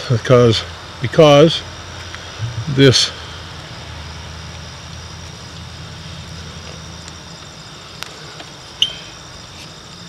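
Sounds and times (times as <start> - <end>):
insects trilling: 0.0 - 10.0
low rumble: 2.4 - 3.0.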